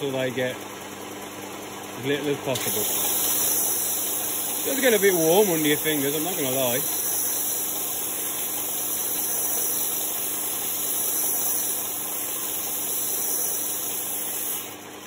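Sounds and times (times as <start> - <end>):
metal lathe humming: 2.2 - 15.0.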